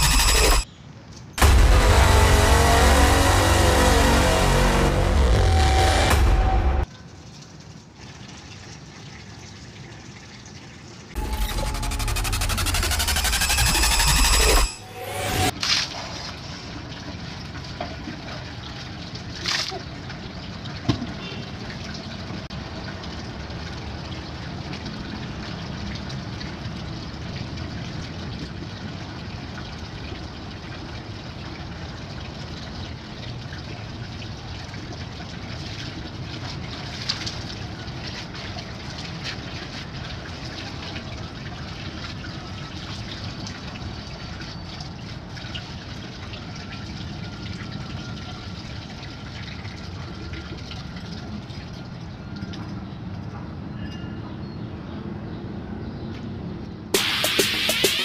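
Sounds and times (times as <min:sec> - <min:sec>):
sharp knock: 0:57.0 - 0:58.0.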